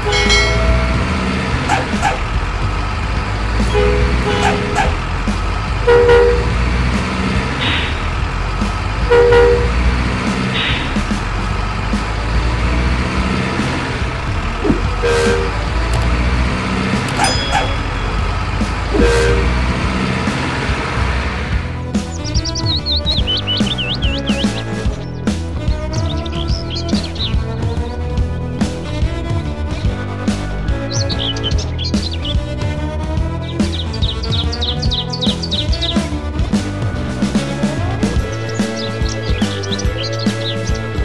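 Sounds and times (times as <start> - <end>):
two-tone horn toots: 0.0 - 2.3, 3.6 - 5.1, 5.8 - 6.8, 9.1 - 10.0, 12.2 - 20.5
truck engine rumbling: 0.0 - 41.0.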